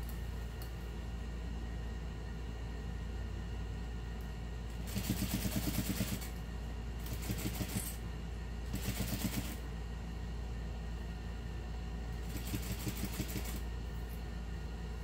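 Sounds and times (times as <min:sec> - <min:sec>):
steady low hum: 0:00.0 - 0:15.0
sewing machine stitching: 0:04.8 - 0:06.4, 0:07.0 - 0:08.0, 0:08.7 - 0:09.6, 0:12.3 - 0:13.6.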